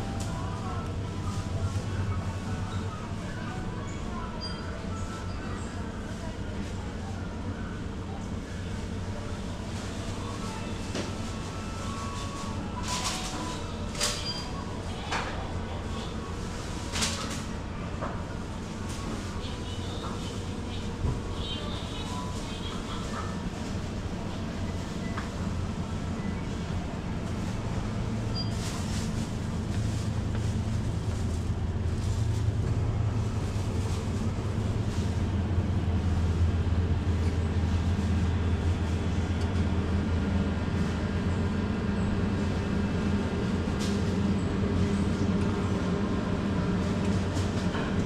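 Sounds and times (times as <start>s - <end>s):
refrigerated display cases humming: 0.0s - 48.0s.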